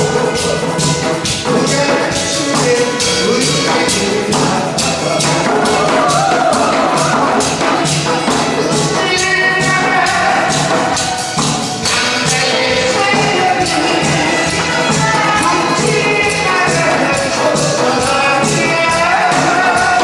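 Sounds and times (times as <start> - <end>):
barrel drum beaten with stick: 0.0 - 20.0
upbeat dance music: 0.0 - 20.0.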